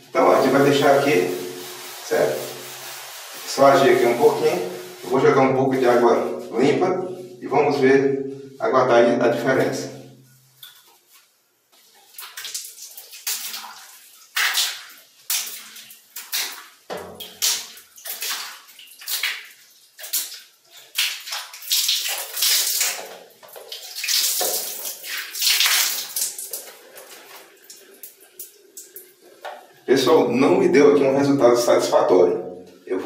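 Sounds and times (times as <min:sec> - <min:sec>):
water splashing on glass screen: 0:00.2 - 0:05.2, 0:10.2 - 0:29.7.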